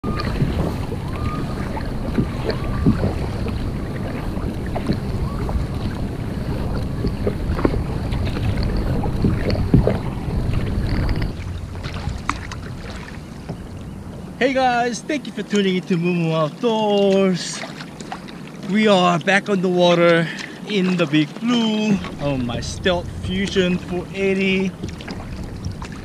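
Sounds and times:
wind on microphone: 0.0s - 14.9s, 21.7s - 26.0s
paddle splashing through water: 0.0s - 26.0s
water dripping: 20.0s - 26.0s.

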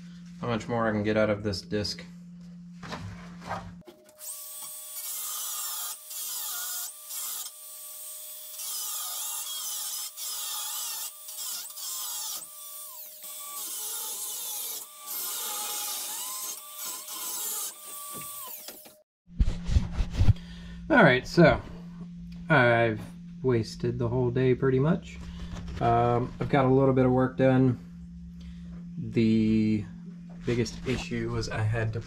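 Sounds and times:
grinder cutting sheet steel: 4.1s - 19.0s.

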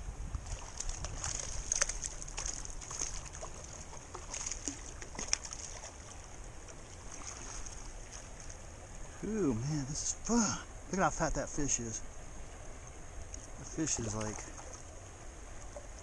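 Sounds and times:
fish splashing: 0.4s - 8.6s.

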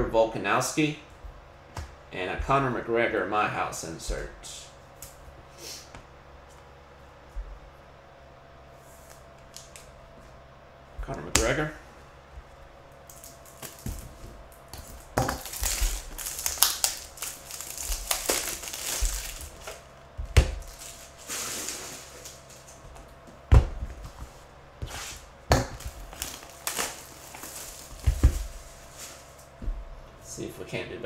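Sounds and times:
wrappers crinkling and rustling: 13.0s - 19.9s, 20.6s - 22.8s, 25.8s - 29.6s.

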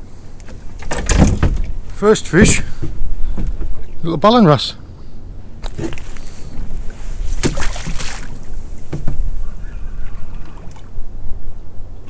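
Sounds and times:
wind rumbling on microphone: 0.0s - 4.2s, 5.2s - 12.0s
water moving against hull: 0.0s - 12.0s
short knocks or splashes: 5.6s - 6.2s, 7.3s - 9.3s.

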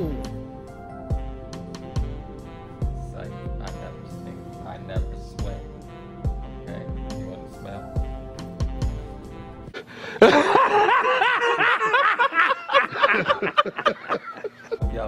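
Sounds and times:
background music with bass: 0.0s - 9.8s
high voices laughing: 10.2s - 14.8s.

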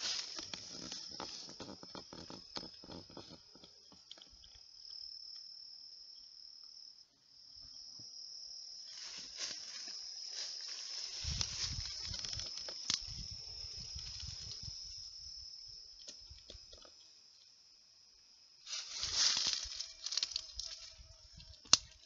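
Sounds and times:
leaves and branches rustling: 0.0s - 4.2s, 8.8s - 15.4s, 18.6s - 22.0s
insects chirping: 0.0s - 22.0s.

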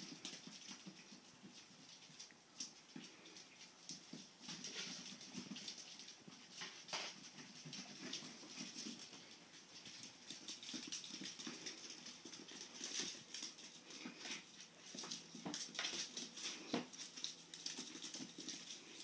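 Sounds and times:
puppies' claws clicking on floor: 0.0s - 19.0s.

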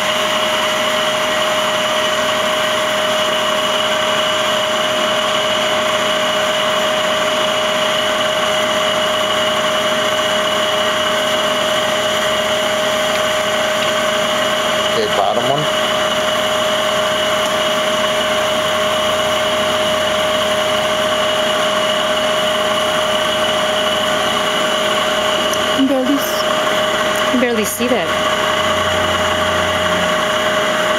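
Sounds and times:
machine whine: 0.0s - 30.9s.

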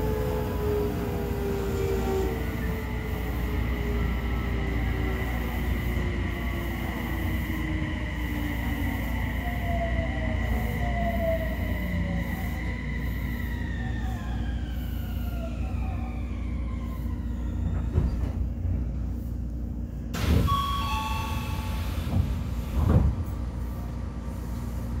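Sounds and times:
train inverter whining: 0.0s - 18.8s
two-tone door chime: 20.4s - 21.8s.

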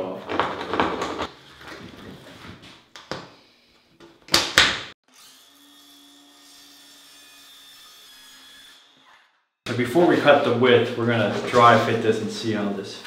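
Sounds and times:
circular saw cutting foam: 5.0s - 9.4s.

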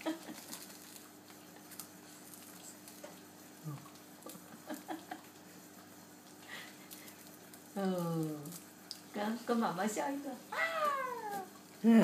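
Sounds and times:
faint steady hum: 0.0s - 12.0s
toddler chewing crunchy snack: 0.2s - 4.4s, 5.3s - 7.8s.

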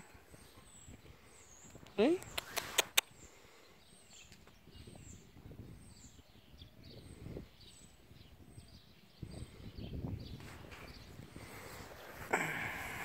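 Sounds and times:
distant bird chirps: 0.0s - 13.0s
low wind rumble: 4.6s - 13.0s.

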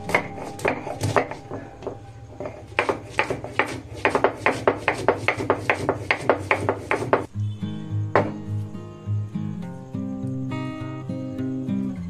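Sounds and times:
grinding stone knocking and scraping: 0.0s - 7.3s.

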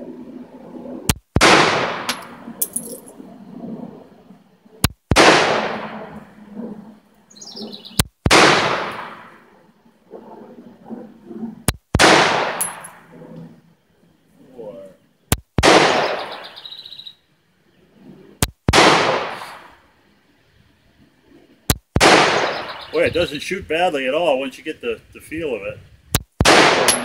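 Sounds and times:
pistol shots with echo: 1.4s - 2.4s, 5.1s - 6.1s, 8.3s - 9.4s, 12.0s - 13.0s, 15.6s - 16.6s, 18.7s - 19.7s, 22.0s - 23.0s, 26.4s - 27.0s
light metallic clinks: 2.1s - 3.1s.

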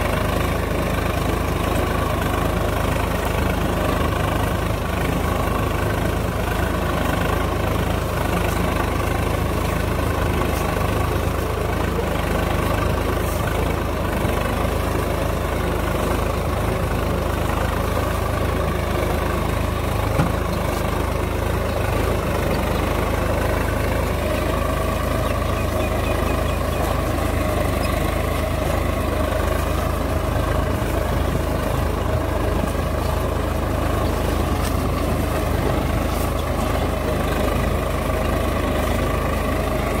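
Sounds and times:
tractor diesel engine running: 0.0s - 40.0s.

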